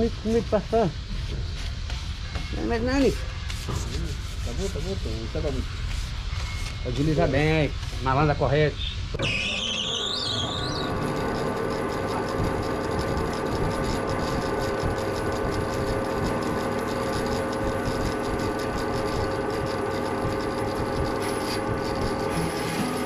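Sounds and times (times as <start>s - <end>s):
rising whine: 9.0s - 23.0s
band saw cutting timber: 9.2s - 23.0s.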